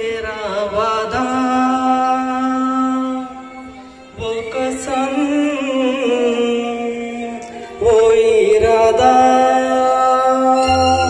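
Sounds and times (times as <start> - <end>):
person singing over sound system: 0.0 - 11.0.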